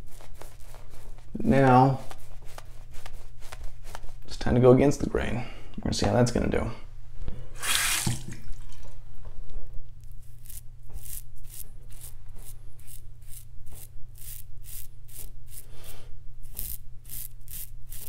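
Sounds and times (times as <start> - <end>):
razor scraping stubble: 0.0 - 4.2, 10.0 - 18.0.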